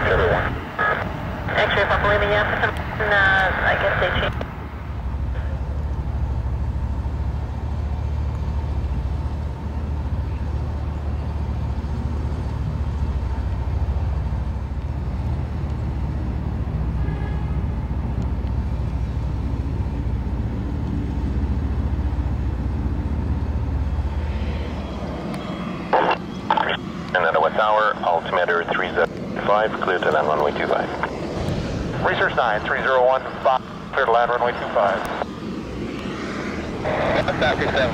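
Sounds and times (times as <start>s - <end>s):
airport background rumble: 0.0s - 37.9s
faint high whine: 23.2s - 31.3s.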